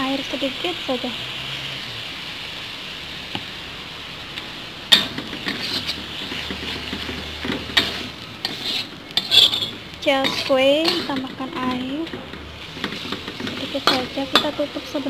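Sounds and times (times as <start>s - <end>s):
food sizzling in a wok: 0.0s - 15.0s
metal spatula scraping a wok: 4.9s - 15.0s.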